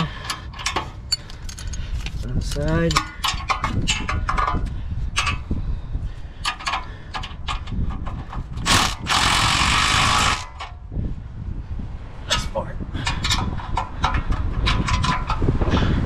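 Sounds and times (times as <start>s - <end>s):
cordless impact wrench: 8.6s - 10.7s.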